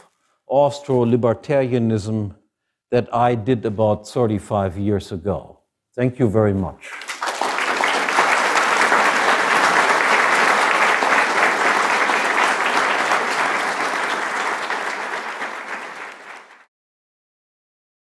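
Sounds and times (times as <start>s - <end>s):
audience applauding: 6.9s - 16.7s.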